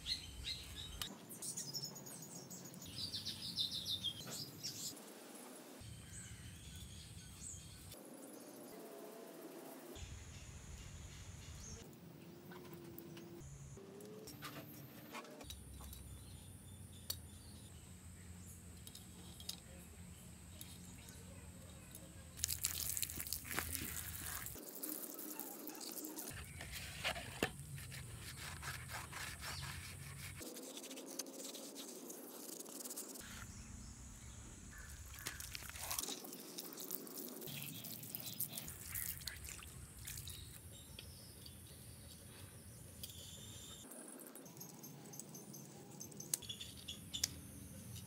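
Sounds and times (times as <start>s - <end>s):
brush scrubbing rubber tyre: 22.5s - 33.5s.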